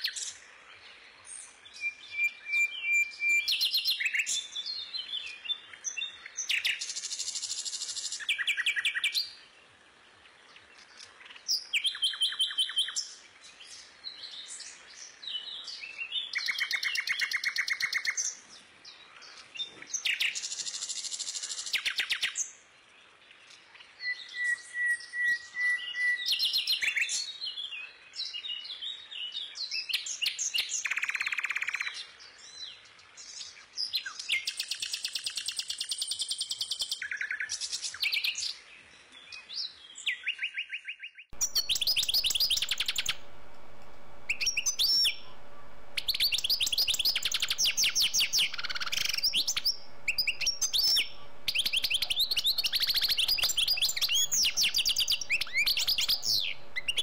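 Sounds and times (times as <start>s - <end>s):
songbirds chirping and trilling: 0.0s - 34.9s, 35.8s - 57.0s
steady low hum: 41.4s - 57.0s.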